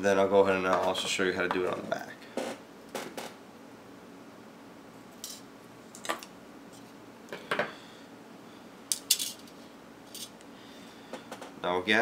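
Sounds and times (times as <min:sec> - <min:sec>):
small tools clinking on table: 0:08.9 - 0:09.4.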